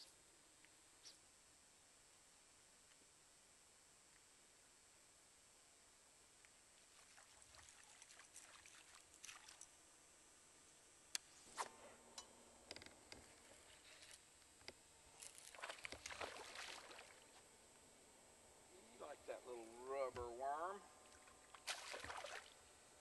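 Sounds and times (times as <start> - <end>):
water lapping and splashing: 6.8 - 9.7, 15.4 - 17.4, 21.0 - 22.7.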